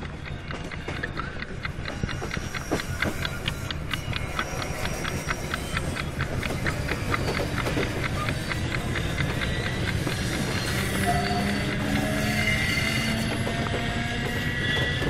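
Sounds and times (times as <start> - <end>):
rapid even clicking: 0.0 - 11.0
electric train rumbling: 0.0 - 15.0.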